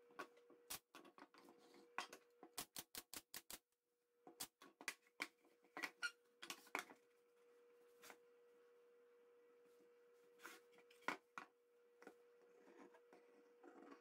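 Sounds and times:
faint steady hum: 0:04.1 - 0:14.0.

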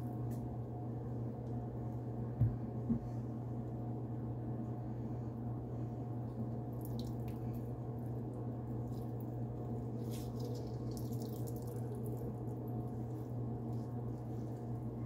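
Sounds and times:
steady low hum: 0:00.0 - 0:15.0
sticky dough squelches: 0:06.6 - 0:15.0.

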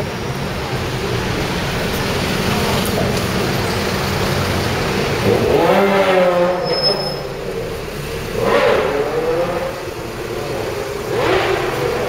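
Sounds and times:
motorcycle engine revving: 0:01.3 - 0:12.0.

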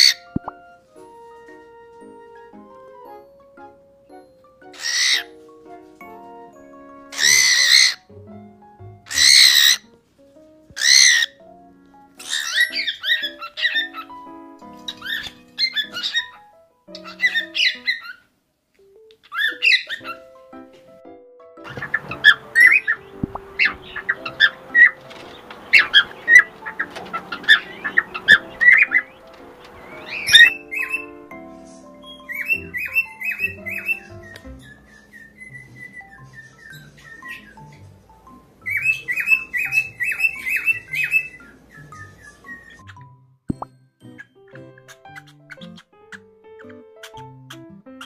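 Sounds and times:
soft background music: 0:00.0 - 0:48.0
cockatiel screaming: 0:04.8 - 0:05.3, 0:07.1 - 0:08.1, 0:09.1 - 0:09.9, 0:10.8 - 0:11.4, 0:12.2 - 0:14.1, 0:14.9 - 0:16.4, 0:32.2 - 0:37.5
bird chirping chatter: 0:07.1 - 0:08.0, 0:12.2 - 0:18.2, 0:21.7 - 0:43.0.

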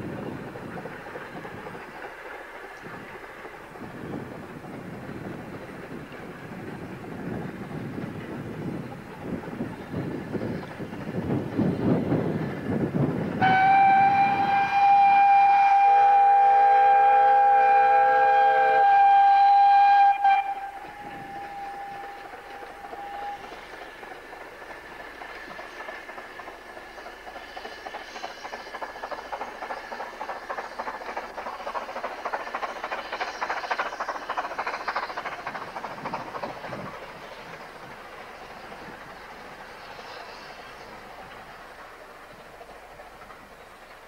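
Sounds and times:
steam train chuffing and clatter: 0:00.0 - 0:44.0
multi-note train whistle: 0:13.4 - 0:23.6.

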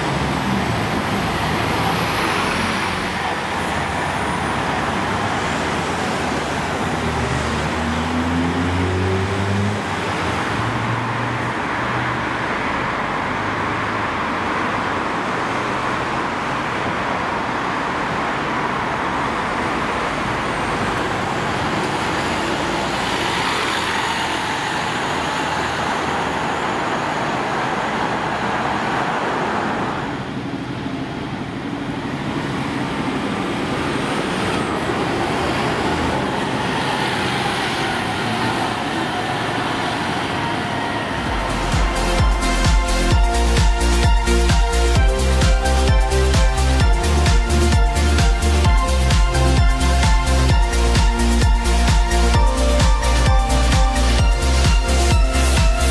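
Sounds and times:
bus engine accelerating: 0:00.0 - 0:55.9
road traffic noise: 0:00.0 - 0:55.9.

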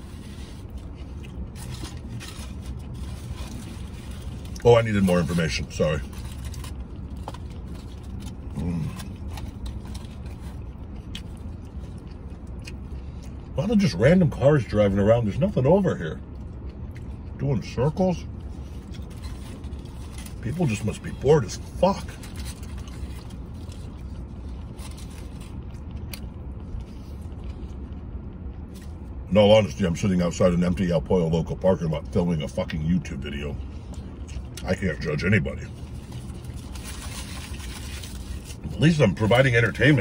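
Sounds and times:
tin foil crinkling: 0:00.0 - 0:12.6, 0:18.5 - 0:27.8, 0:34.7 - 0:40.0
vehicle cabin hum: 0:00.0 - 0:40.0
chewing: 0:06.1 - 0:13.6.

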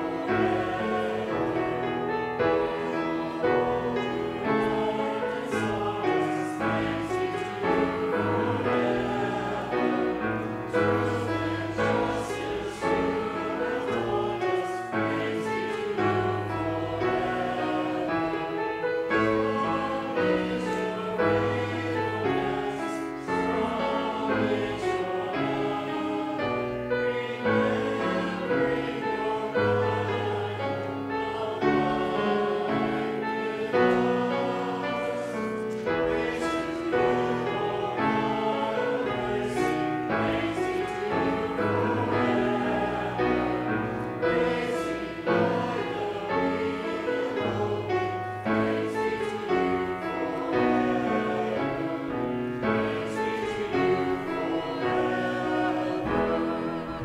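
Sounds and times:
congregation singing a hymn: 0:00.0 - 0:57.0.

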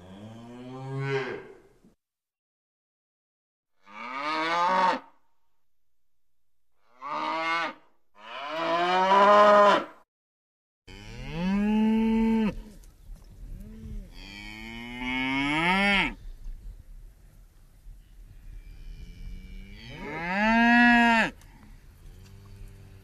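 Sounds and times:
cows mooing: 0:03.8 - 0:05.2, 0:06.8 - 0:10.0, 0:10.9 - 0:12.7, 0:19.0 - 0:21.4.

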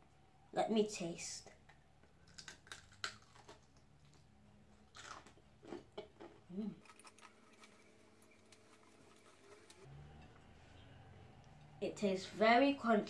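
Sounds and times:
chewing crunchy onion ring: 0:02.2 - 0:09.9.

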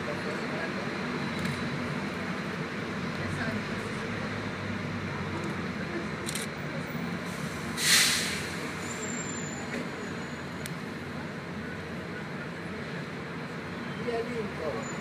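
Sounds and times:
street traffic: 0:00.0 - 0:15.0
air brakes hissing: 0:07.3 - 0:09.8.

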